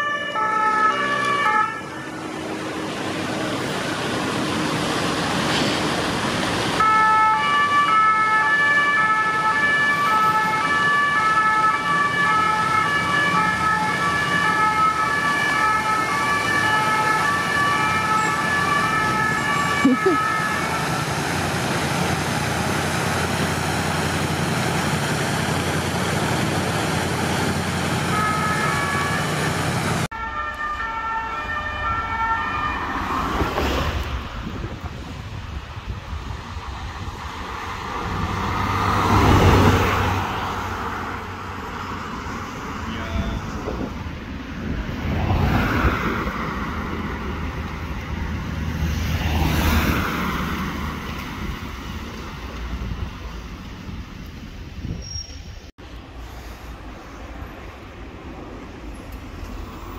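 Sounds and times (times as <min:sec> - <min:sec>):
police two-tone siren: 0:00.0 - 0:02.5, 0:06.8 - 0:20.8, 0:28.1 - 0:29.5, 0:30.1 - 0:34.0
road traffic noise: 0:00.0 - 0:59.9.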